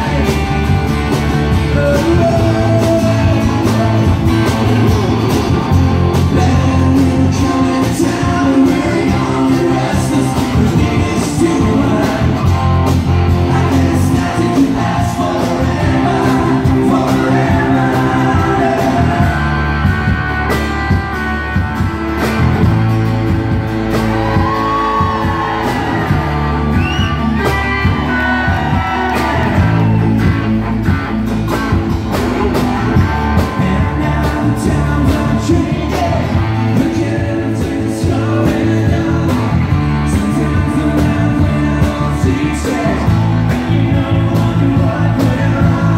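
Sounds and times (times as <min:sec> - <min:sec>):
person singing: 0:00.0 - 0:05.4, 0:06.1 - 0:20.6, 0:32.4 - 0:45.9
live country band playing: 0:00.0 - 0:45.9.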